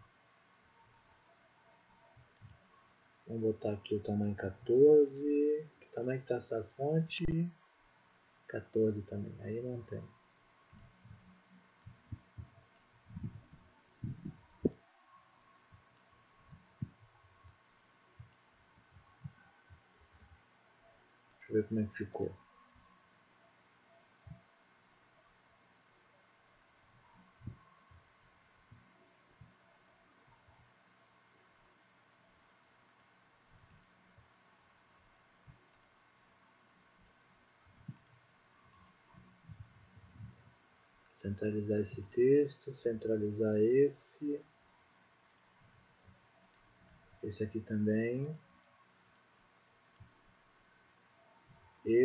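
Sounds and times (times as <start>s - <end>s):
faint steady hiss: 0.0s - 52.0s
computer mouse clicks: 2.3s - 2.7s, 10.7s - 11.0s, 32.8s - 34.0s, 35.5s - 36.0s, 37.9s - 39.0s, 45.3s - 45.5s, 46.4s - 46.7s, 48.2s - 50.2s
soft low thumps: 10.9s - 14.8s, 39.4s - 40.6s.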